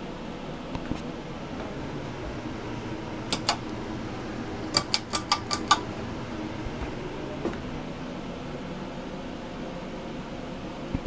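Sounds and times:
ceiling fan humming: 0:00.0 - 0:11.0
pull-chain switch clicks: 0:03.3 - 0:03.8, 0:04.7 - 0:05.8.

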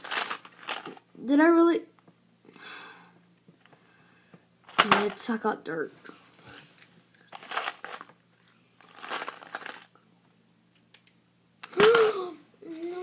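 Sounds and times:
box crinkling: 0:00.0 - 0:01.0, 0:07.3 - 0:08.1, 0:08.8 - 0:09.9.

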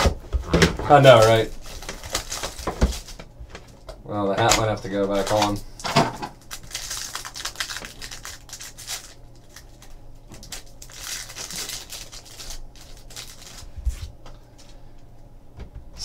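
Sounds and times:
plastic wrapper crinkling: 0:00.8 - 0:03.2, 0:04.5 - 0:05.6, 0:06.3 - 0:14.1.

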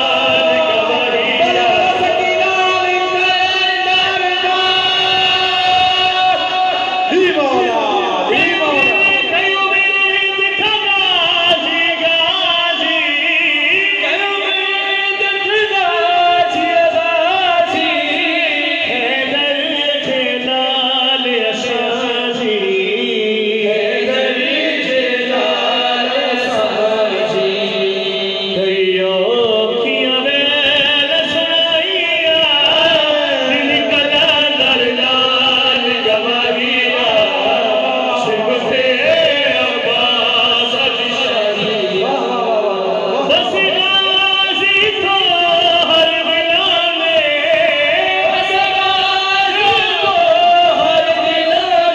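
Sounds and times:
male singer and chorus singing: 0:00.0 - 0:51.9.

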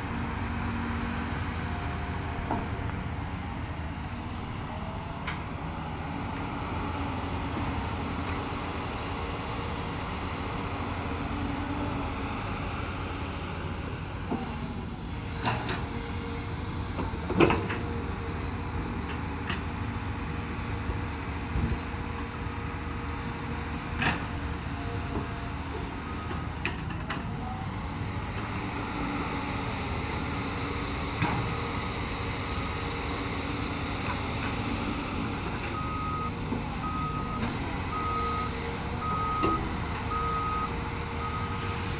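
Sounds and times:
excavator diesel engine running: 0:00.0 - 0:41.9
reversing beeps: 0:35.7 - 0:41.7.

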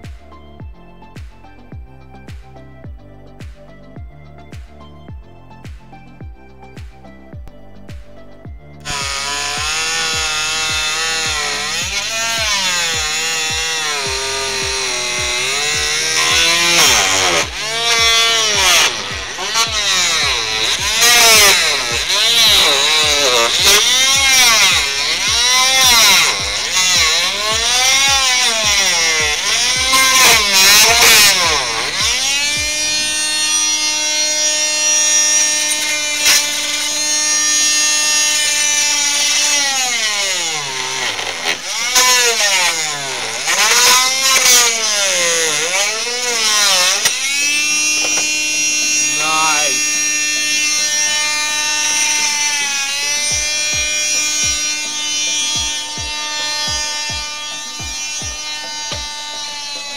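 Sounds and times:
motor revving: 0:00.0 - 0:59.9.

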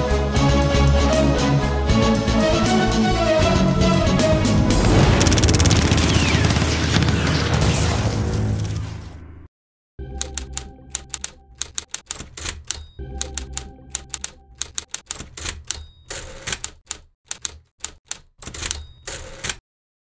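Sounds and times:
typewriter keys clacking: 0:10.2 - 0:19.6
typewriter bell ring: 0:11.0 - 0:16.8, 0:18.4 - 0:19.6
typewriter carriage return slide: 0:14.6 - 0:19.6.

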